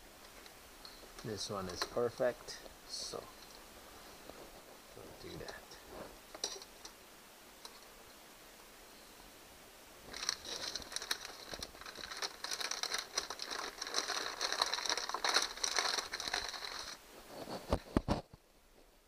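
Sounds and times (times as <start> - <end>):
packaging crinkling and rustling: 10.0 - 18.3.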